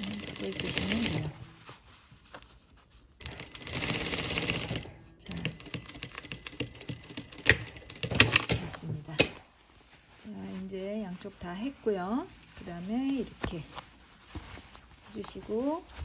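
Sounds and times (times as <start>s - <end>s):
sewing machine stitching: 0.0s - 1.4s, 3.2s - 9.4s
sewing machine clacks: 3.2s - 8.6s.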